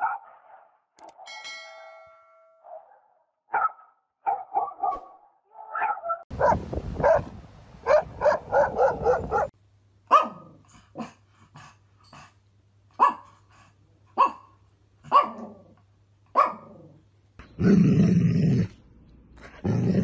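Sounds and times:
large dog barking: 0.0s - 0.8s, 2.7s - 9.5s, 10.1s - 10.6s, 15.1s - 16.9s.

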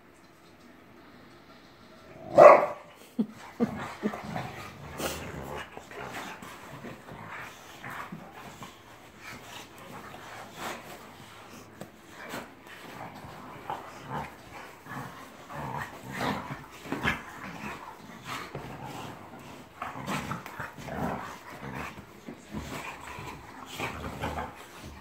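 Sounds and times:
dog barking: 2.3s - 2.8s
dogs tussling noises: 2.4s - 25.0s.

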